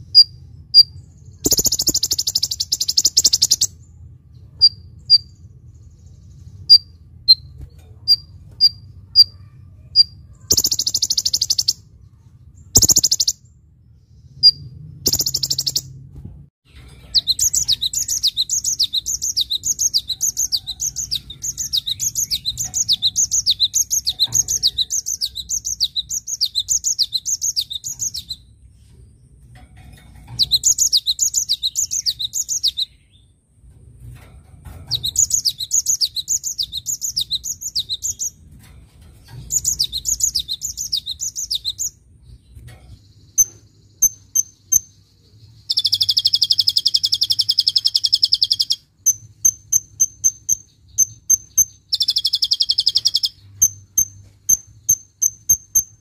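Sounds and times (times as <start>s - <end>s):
bird song of falling notes: 10.0s - 11.8s, 14.4s - 15.9s, 16.6s - 28.4s, 29.8s - 33.2s, 39.2s - 42.6s.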